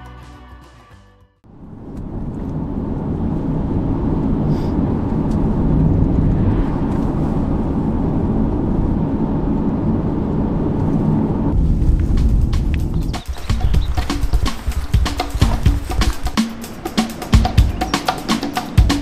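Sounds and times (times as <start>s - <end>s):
car road and engine rumble: 1.5s - 16.4s.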